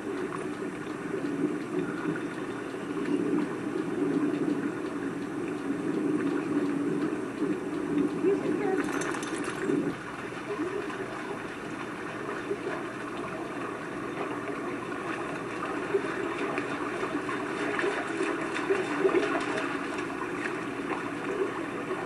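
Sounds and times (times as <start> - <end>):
dog splashing through water: 15.0 - 22.0.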